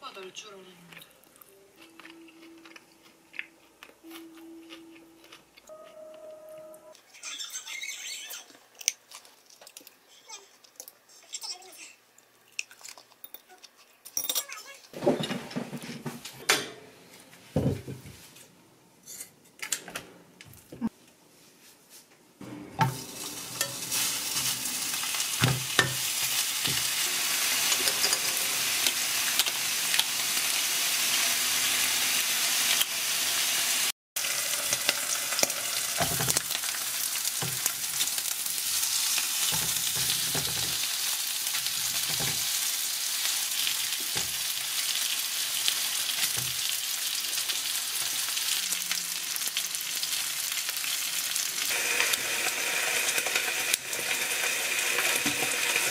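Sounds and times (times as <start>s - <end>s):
meat sizzling in a frying pan: 23.0s - 55.9s.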